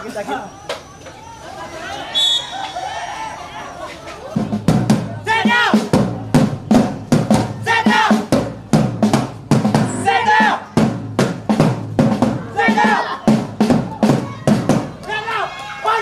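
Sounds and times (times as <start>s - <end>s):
music with busy drum beat: 4.0s - 15.1s
steady bass note: 9.5s - 10.7s
bending melodic line: 9.6s - 10.7s.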